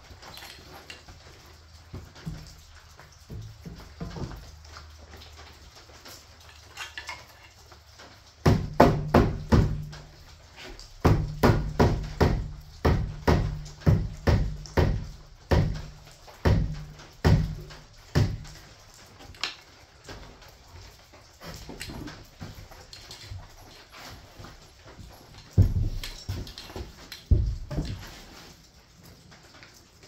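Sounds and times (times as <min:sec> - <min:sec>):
hammer striking wood: 0:08.4 - 0:10.0, 0:11.0 - 0:18.5.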